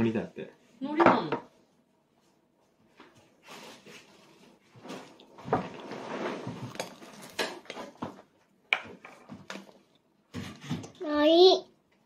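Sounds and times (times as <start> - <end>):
rustling: 2.1 - 8.2.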